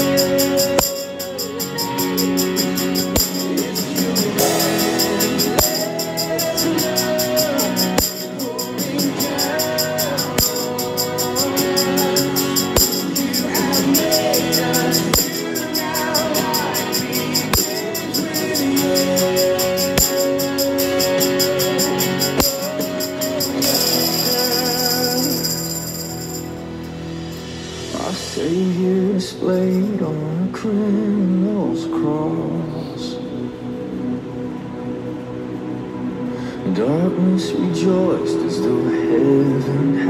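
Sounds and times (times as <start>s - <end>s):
tambourine jingling: 0.0s - 27.5s
worship music from speaker: 0.0s - 40.0s.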